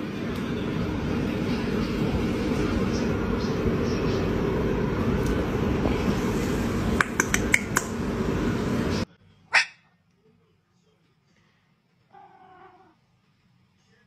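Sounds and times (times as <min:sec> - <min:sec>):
steady low noise: 0:00.0 - 0:09.4
cat meowing: 0:12.1 - 0:13.0.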